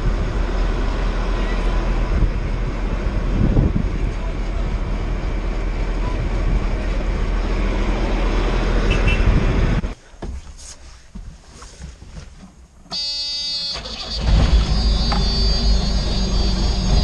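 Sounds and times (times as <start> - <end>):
loud engine rumble: 0.0 - 10.0, 13.8 - 17.0
cab warning buzzer: 12.9 - 17.0.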